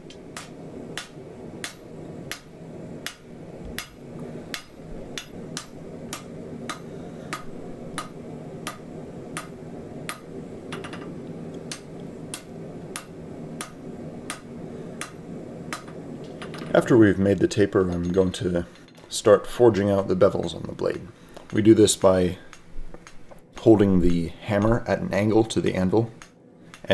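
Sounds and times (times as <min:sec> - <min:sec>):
hammer striking hot steel on anvil: 0:00.0 - 0:16.9, 0:21.4 - 0:23.3
steady low hum: 0:00.0 - 0:26.9.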